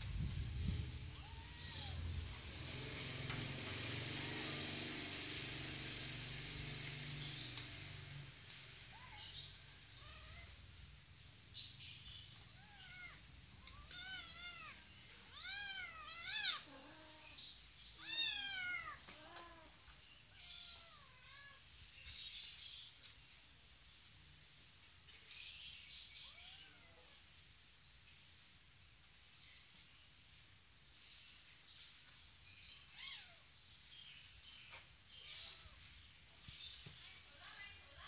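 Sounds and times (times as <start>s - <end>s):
kittens meowing: 1.0s - 2.3s, 8.9s - 10.6s, 12.3s - 21.7s, 26.2s - 27.1s, 32.8s - 33.5s, 35.2s - 36.0s.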